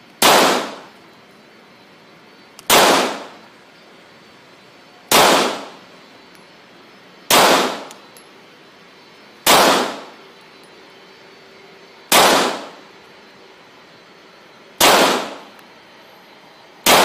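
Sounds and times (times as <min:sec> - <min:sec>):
pistol shots with echo: 0:00.2 - 0:00.9, 0:02.7 - 0:03.4, 0:05.1 - 0:05.8, 0:07.3 - 0:07.9, 0:09.4 - 0:10.2, 0:12.1 - 0:12.8, 0:14.8 - 0:15.5.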